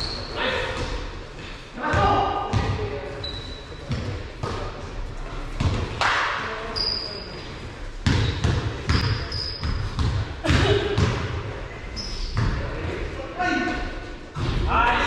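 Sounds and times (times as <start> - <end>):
sneaker squeaks: 0.0 - 1.0, 2.5 - 4.2, 6.7 - 10.1, 11.8 - 12.6
basketball dribbling on court: 8.0 - 11.3.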